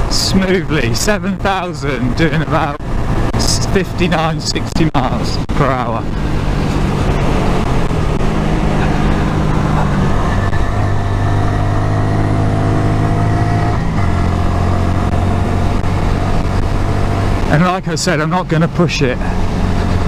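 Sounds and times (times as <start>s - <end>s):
wind rushing over microphone: 1.3s - 17.5s
motorcycle engine running: 5.0s - 17.6s.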